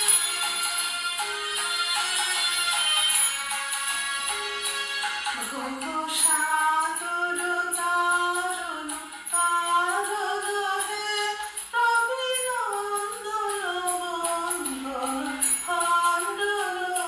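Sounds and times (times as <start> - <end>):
woman singing: 5.3 - 17.0.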